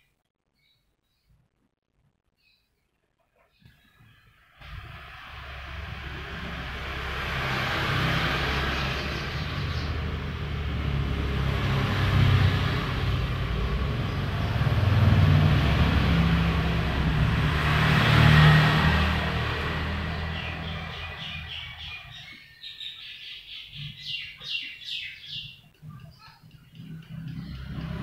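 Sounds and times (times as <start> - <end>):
vehicle engine rumble: 4.6 - 22.3, 25.7 - 28.0.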